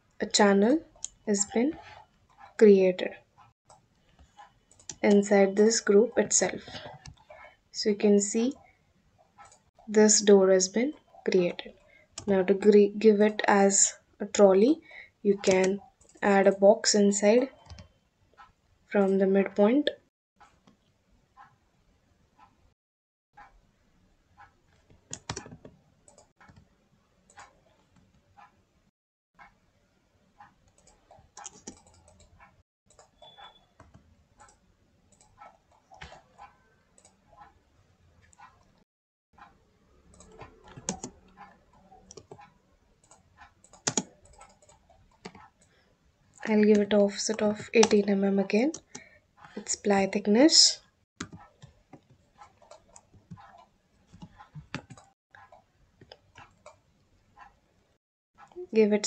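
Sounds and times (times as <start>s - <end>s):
keyboard and mouse clicks: 3.7s - 8.6s, 9.4s - 12.8s, 15.3s - 16.5s, 17.5s - 19.1s, 24.4s - 26.7s, 27.3s - 28.5s, 30.4s - 37.6s, 39.4s - 45.8s, 46.4s - 50.1s, 51.2s - 57.6s
mouse and keyboard clicks: 15.4s - 16.3s, 24.4s - 26.6s, 30.4s - 37.5s, 40.1s - 45.6s.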